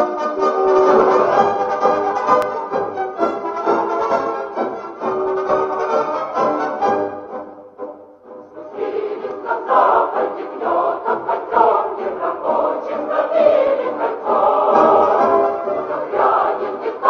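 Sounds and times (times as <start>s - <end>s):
choir singing a rousing song: 8.5s - 17.0s.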